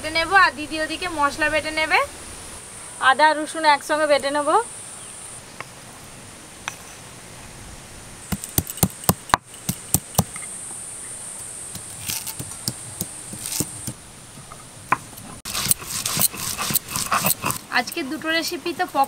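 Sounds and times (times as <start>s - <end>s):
high insect drone: 8.2s - 14.0s
stone roller knocking on stone: 8.3s - 10.4s, 11.8s - 14.0s.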